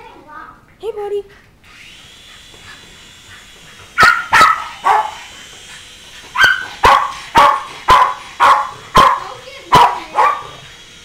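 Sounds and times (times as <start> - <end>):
small dog barking: 4.0 - 5.3, 6.4 - 10.6.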